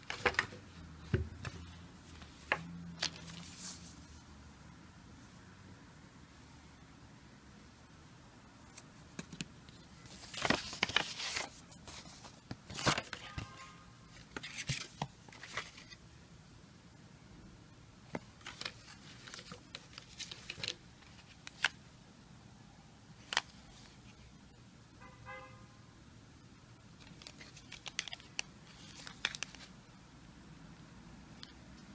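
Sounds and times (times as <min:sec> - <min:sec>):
paper and plastic rustling: 0:00.0 - 0:04.2, 0:08.7 - 0:16.0, 0:18.1 - 0:21.8, 0:27.0 - 0:29.7.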